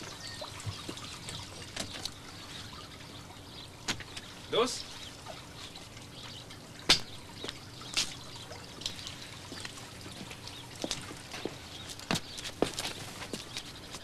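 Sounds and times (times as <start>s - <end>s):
footsteps on outdoor ground: 7.4s - 14.0s.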